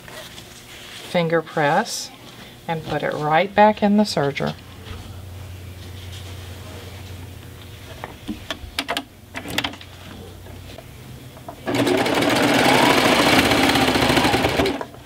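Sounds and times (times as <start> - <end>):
serger machine running fast: 11.0 - 14.9.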